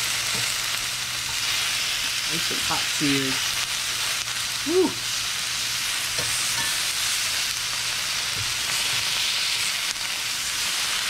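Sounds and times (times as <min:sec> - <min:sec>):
meat sizzling in skillet: 0:00.0 - 0:11.0.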